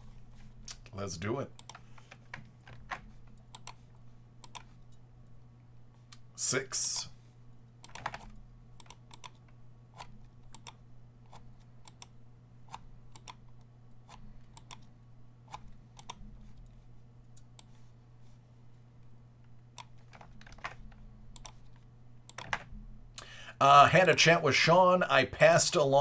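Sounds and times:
steady low hum: 0:00.0 - 0:26.0
keyboard and mouse clicks: 0:01.6 - 0:03.8, 0:04.4 - 0:05.0, 0:07.8 - 0:12.1, 0:12.7 - 0:13.4, 0:14.1 - 0:14.9, 0:15.5 - 0:16.7, 0:19.8 - 0:22.7.

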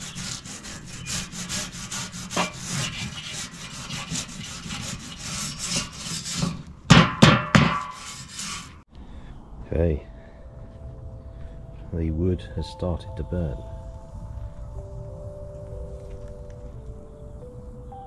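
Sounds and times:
brush scrubbing grill grates: 0:00.0 - 0:06.6, 0:07.6 - 0:08.8
loud knocks: 0:06.9 - 0:08.0.

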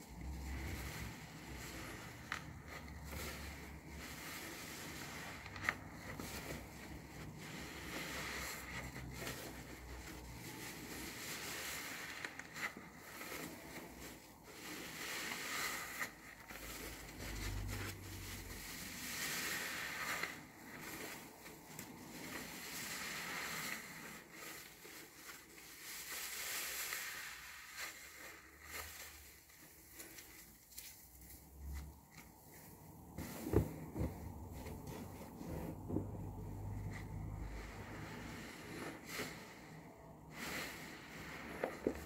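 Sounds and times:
wet sponges squishing: 0:00.0 - 0:42.0
hiss of foam: 0:36.4 - 0:42.0.

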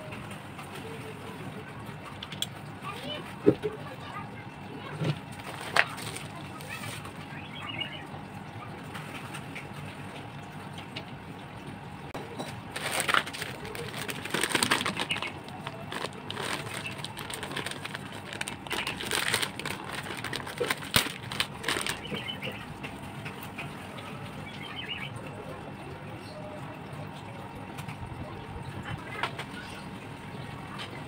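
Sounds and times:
plastic packet crinkling: 0:05.3 - 0:07.1, 0:12.5 - 0:22.6.

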